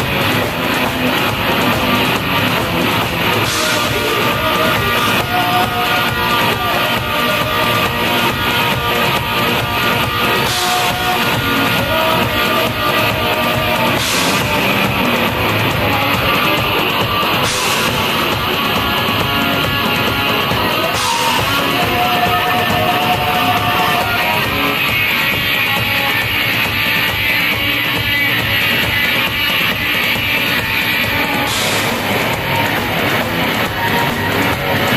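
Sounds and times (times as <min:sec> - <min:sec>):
drum kit: 0:00.0 - 0:34.9
electric guitar: 0:00.0 - 0:34.9
woman singing: 0:20.4 - 0:26.3.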